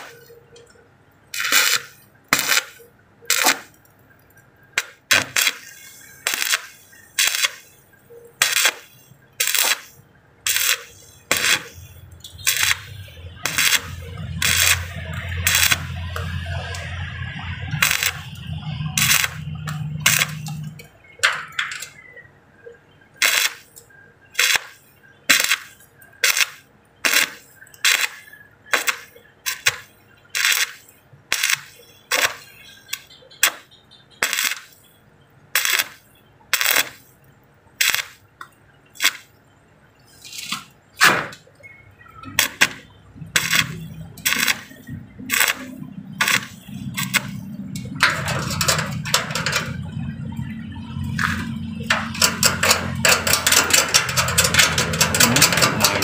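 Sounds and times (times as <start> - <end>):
arc welding crackle: 0.0 - 22.1, 22.8 - 39.4, 42.2 - 56.0
low hum: 42.9 - 56.0.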